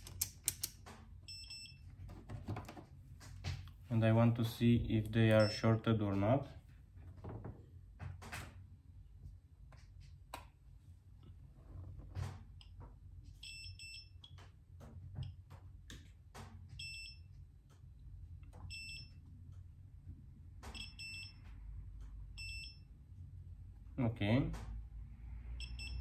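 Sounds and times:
probe tips clicking: 0.0 - 0.8
multimeter beeping: 1.2 - 1.8, 5.3 - 5.8, 16.8 - 17.3, 20.7 - 21.4, 22.4 - 22.9, 25.6 - 26.0.

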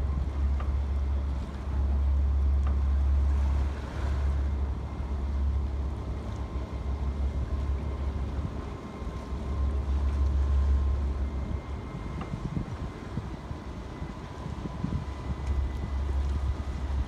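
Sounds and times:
faint high whine: 0.1 - 17.0
wind buffeting microphone: 6.4 - 17.0.

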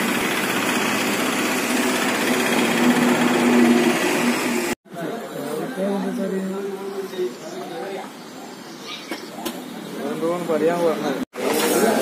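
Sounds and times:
small engine running: 0.0 - 4.8.

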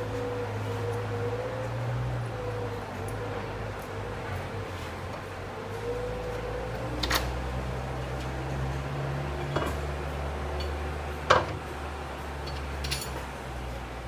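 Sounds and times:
metal plate and bolts clinking: 12.4 - 13.3.

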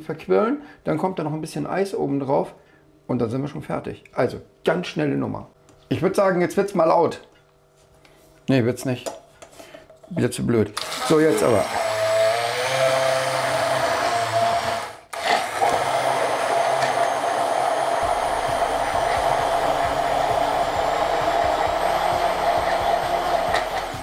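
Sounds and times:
stick blender running: 10.8 - 24.0.

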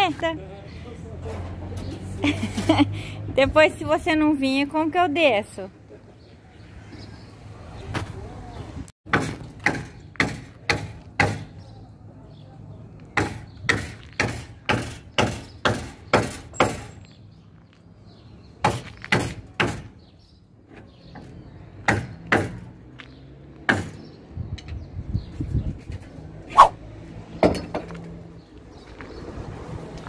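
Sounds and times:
hammer striking wood: 9.1 - 11.5, 13.2 - 16.9, 18.6 - 19.9, 21.8 - 22.6, 23.7 - 24.0.

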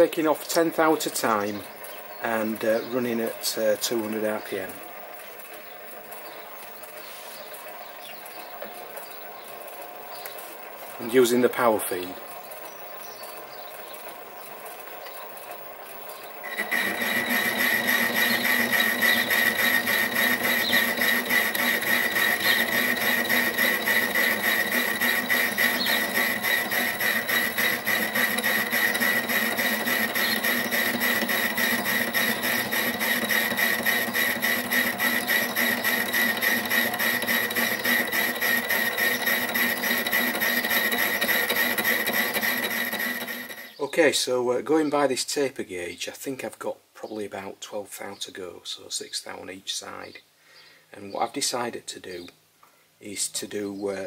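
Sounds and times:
lathe high whine: 13.8 - 43.8.

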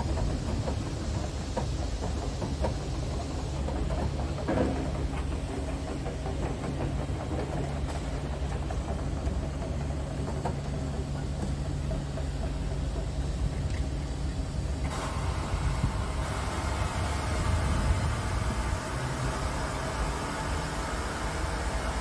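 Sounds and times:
high hiss: 14.0 - 22.0.

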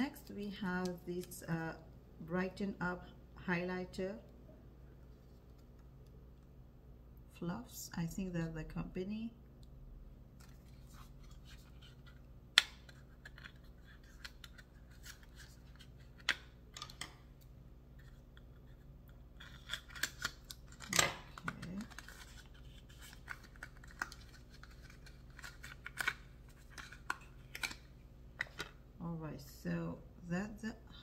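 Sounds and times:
paper packaging being opened: 19.4 - 27.8.

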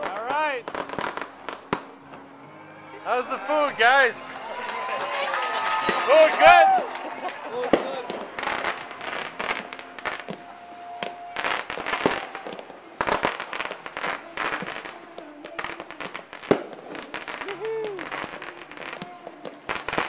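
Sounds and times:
fireworks bangs and crackles: 0.0 - 2.2, 3.2 - 20.0.

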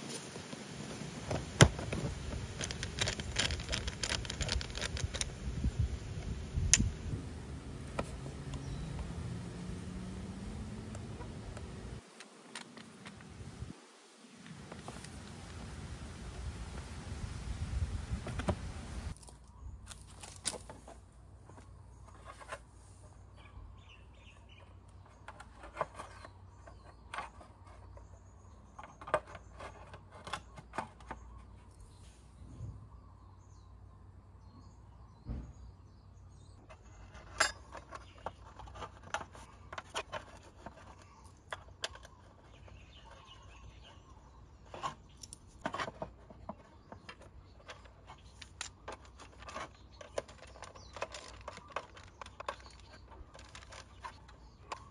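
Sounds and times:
small metal screws handled: 2.4 - 5.4, 44.7 - 54.9
screwdriver turning a screw: 2.5 - 5.4.

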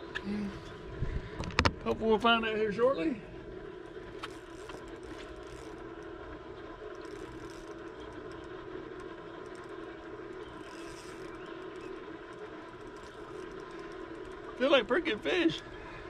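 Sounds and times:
boat motor humming: 0.0 - 16.0
light clicks and scrapes: 4.1 - 6.1, 10.4 - 14.5.

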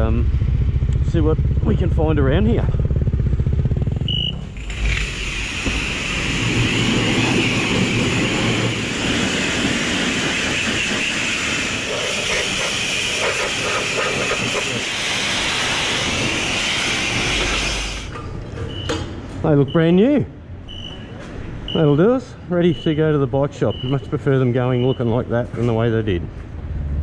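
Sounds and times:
motorcycle engine idling: 0.0 - 4.9
high-pressure spray hissing: 4.6 - 18.1.

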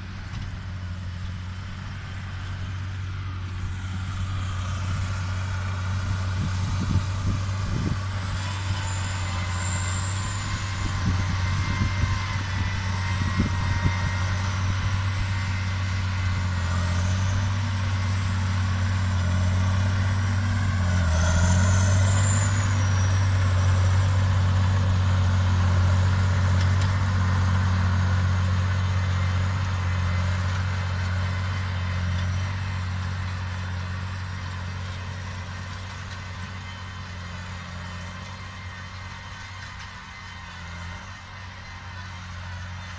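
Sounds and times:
heavy diesel engine drone: 0.0 - 42.9.

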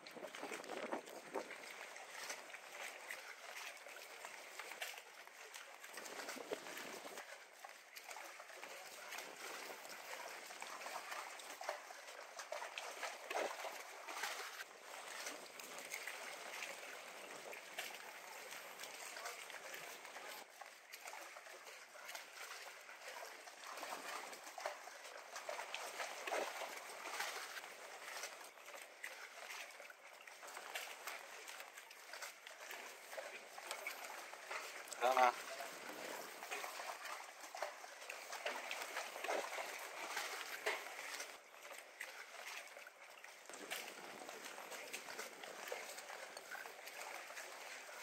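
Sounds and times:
small water splashes: 0.0 - 48.0
water lapping and trickling: 0.0 - 48.0
wind: 0.0 - 48.0.

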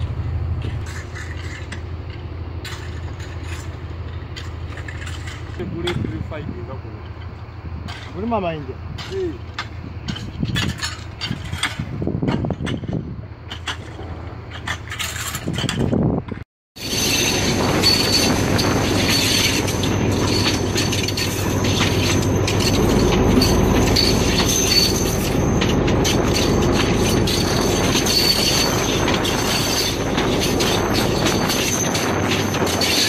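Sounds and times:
wheels rumbling on rail: 0.0 - 33.0
tools scraping in track ballast: 0.5 - 33.0
high squeal of wheels: 16.8 - 33.0.

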